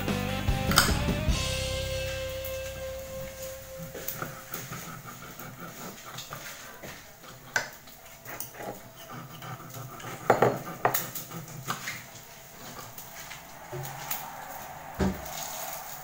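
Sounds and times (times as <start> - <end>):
cutlery and dishes clinking: 8.4 - 12.1.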